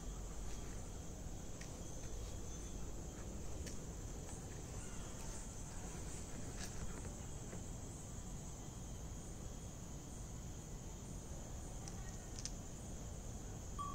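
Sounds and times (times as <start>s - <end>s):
crickets chirring: 0.0s - 13.9s
faint clicks: 11.8s - 12.6s.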